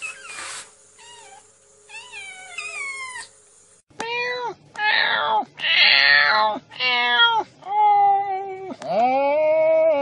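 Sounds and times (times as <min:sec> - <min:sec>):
cat meowing: 0:01.9 - 0:03.3.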